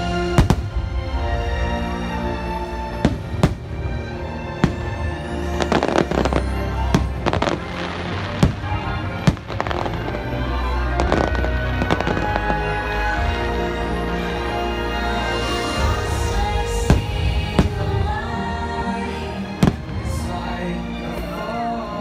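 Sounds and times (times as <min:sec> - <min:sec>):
firework bangs and crackling: 0:00.0 - 0:01.5, 0:02.8 - 0:13.4, 0:15.4 - 0:18.3, 0:19.5 - 0:20.4
music playing: 0:00.0 - 0:22.0.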